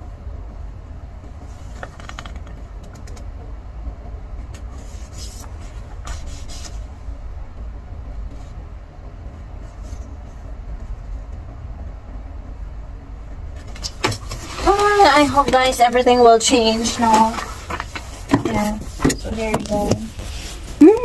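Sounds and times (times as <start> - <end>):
steady low rumble: 0.0 - 21.0
paper rustling and crinkling: 16.6 - 20.8.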